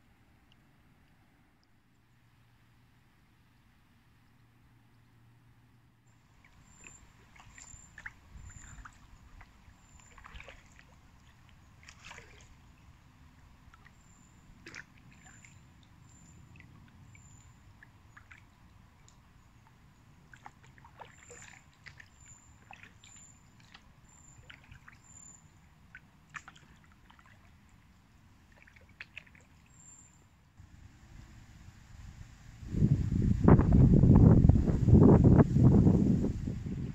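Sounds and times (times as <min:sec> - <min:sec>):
water drips and splashes: 0:06.2 - 0:30.2
low steady rumble: 0:30.4 - 0:36.9.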